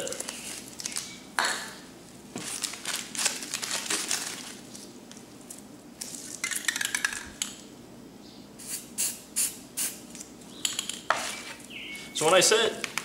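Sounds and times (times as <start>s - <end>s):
spray paint can hissing: 8.6s - 10.0s.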